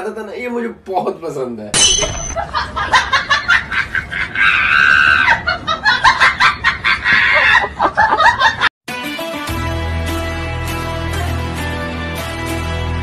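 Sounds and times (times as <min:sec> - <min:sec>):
high-pitched cackling laughter: 0:02.4 - 0:08.6.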